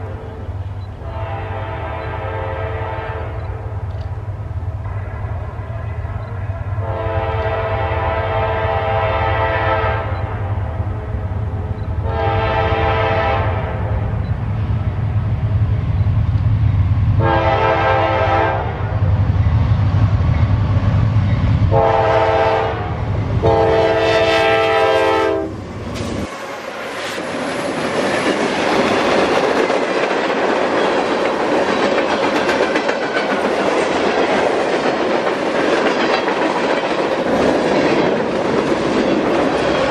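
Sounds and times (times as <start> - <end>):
locomotive air horn blasts: 0.1 - 3.7, 6.8 - 10.4, 12.0 - 14.0, 17.2 - 19.0, 21.7 - 25.6
freight cars clattering on rails: 27.0 - 39.9.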